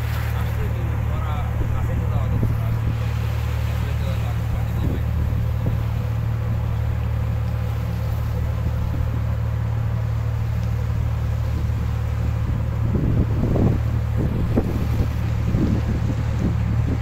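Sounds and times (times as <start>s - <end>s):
diesel engine droning: 0.0s - 17.0s
wind on microphone: 11.1s - 17.0s.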